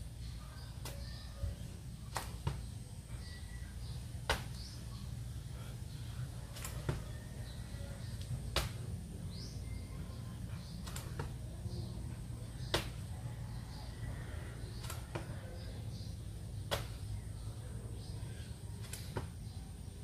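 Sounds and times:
steady low hum: 0.0 - 20.0
hands slapping the floor: 2.1 - 2.6, 4.3 - 4.6, 8.2 - 8.8, 12.7 - 13.0, 16.7 - 17.0.

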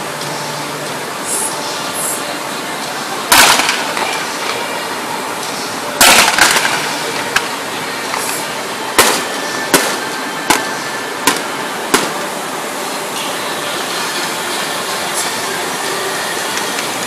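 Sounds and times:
fireworks banging: 3.3 - 4.7, 6.0 - 8.4, 9.0 - 12.4.

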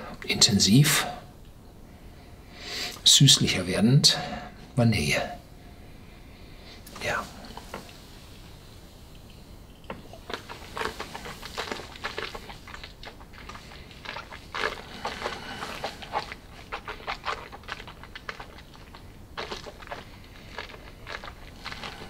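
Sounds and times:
wet mouth smacks and slurps: 9.1 - 22.0.

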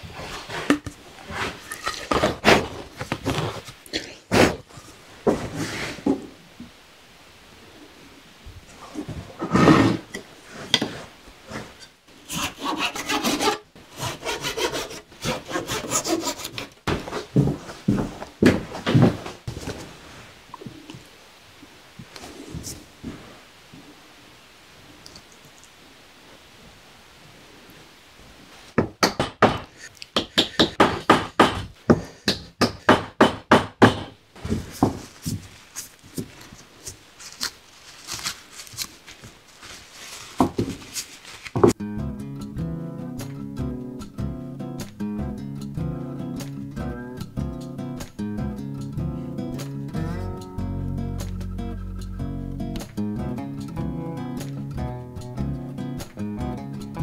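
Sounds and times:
hand saw cutting wood: 12.3 - 16.8
hammer tapping wood: 28.8 - 34.1.

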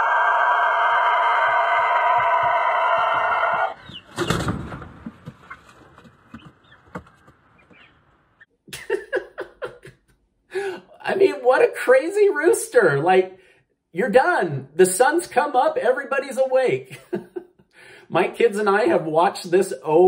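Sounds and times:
rooster crowing: 0.0 - 3.8
thump and wing flapping: 4.0 - 7.8.

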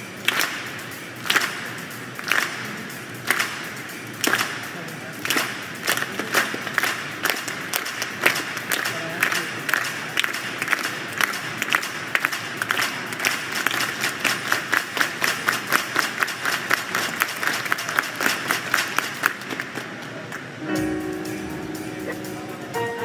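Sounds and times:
sharp close claps: 0.2 - 20.5
audience applauding: 4.2 - 20.6
music with held tones: 20.6 - 23.0.

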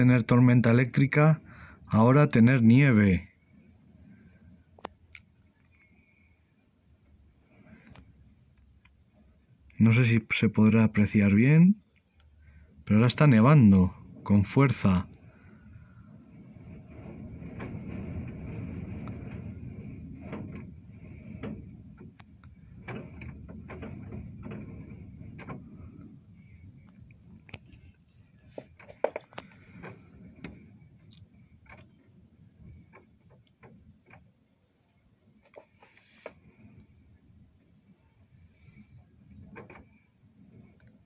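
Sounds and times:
blizzard wind gusting: 12.7 - 35.2.

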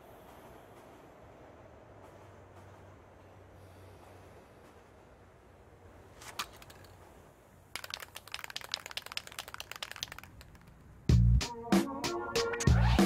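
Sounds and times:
dry crackling clicks: 6.2 - 11.0.

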